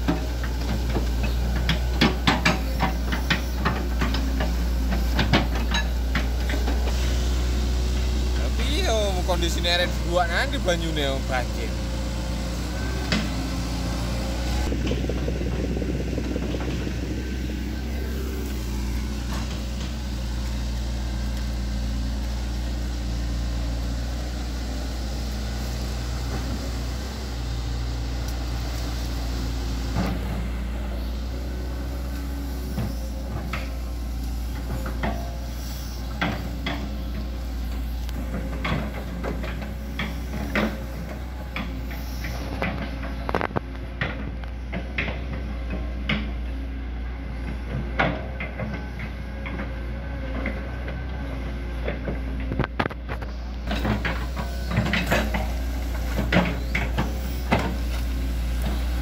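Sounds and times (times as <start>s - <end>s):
sharp knocks from excavator: 0.0s - 6.8s, 51.8s - 58.0s
excavator diesel engine running: 0.0s - 59.0s.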